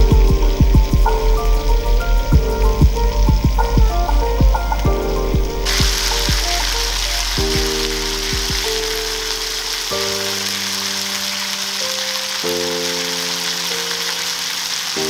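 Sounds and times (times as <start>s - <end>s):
soft low beats: 0.0s - 9.7s
music of held chords: 0.0s - 15.0s
steady hiss: 0.0s - 15.0s.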